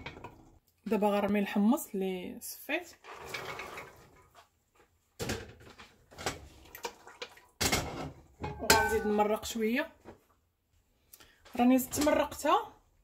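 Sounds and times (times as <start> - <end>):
metal pot knocking: 8.4 - 9.3.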